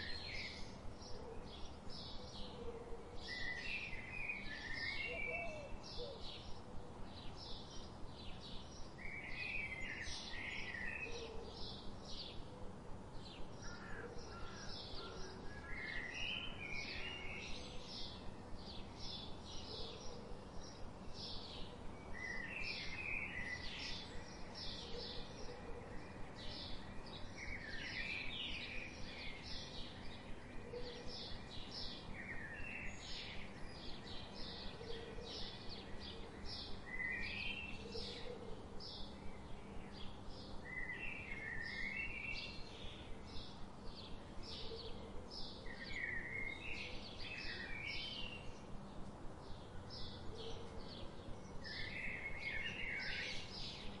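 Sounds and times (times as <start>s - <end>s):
small birds chirping: 38.9s - 54.0s.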